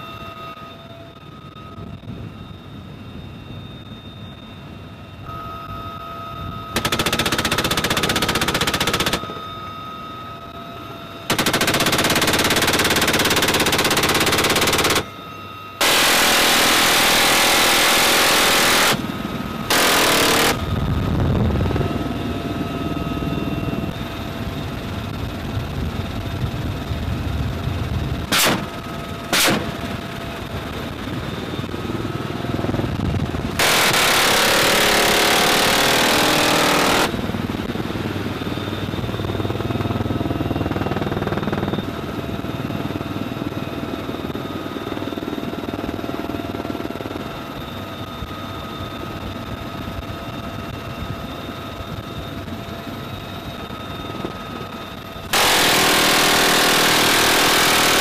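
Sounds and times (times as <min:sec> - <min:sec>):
helicopter running: 0:00.7 - 0:58.0
machine gun firing bursts: 0:06.8 - 0:09.2, 0:11.3 - 0:15.0, 0:15.8 - 0:19.0, 0:19.7 - 0:20.7, 0:33.6 - 0:37.2, 0:55.3 - 0:58.0.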